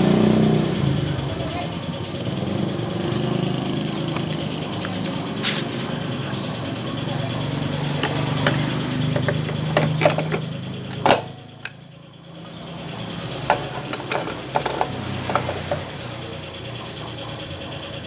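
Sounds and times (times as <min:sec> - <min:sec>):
metal clicks and clunks: 0:13.5 - 0:15.9.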